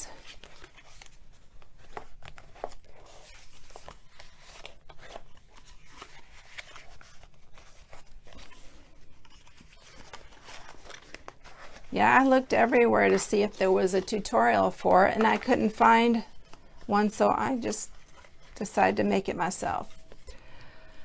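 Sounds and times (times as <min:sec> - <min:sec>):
paper rustling: 0:00.0 - 0:20.5.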